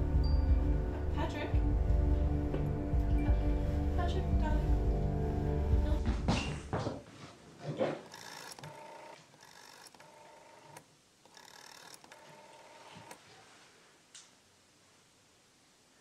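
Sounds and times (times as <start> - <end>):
telephone handset tone: 8.1 - 13.1.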